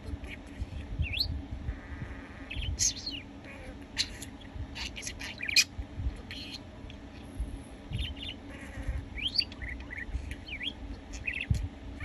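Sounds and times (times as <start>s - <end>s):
budgerigar chirping: 1.1s - 5.7s, 8.0s - 11.6s.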